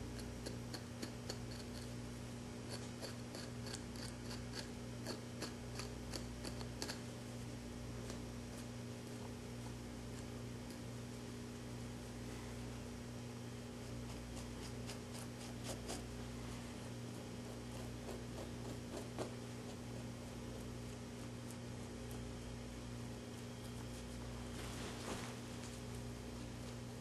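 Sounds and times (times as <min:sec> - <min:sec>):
low electrical hum: 0:00.0 - 0:27.0
knife scraping skin: 0:14.0 - 0:16.0.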